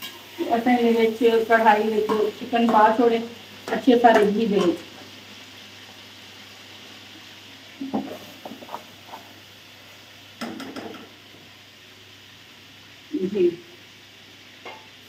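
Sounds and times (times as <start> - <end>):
chicken sizzling in oil: 0.0 - 15.0
spoon stirring a pot: 7.8 - 9.4.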